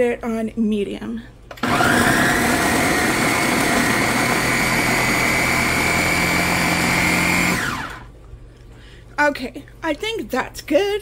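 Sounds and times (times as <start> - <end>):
blender motor whining: 1.6 - 8.1.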